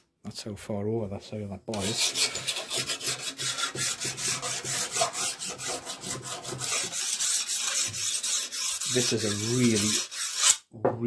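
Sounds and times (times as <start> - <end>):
steel file rasping on metal: 1.7 - 10.6.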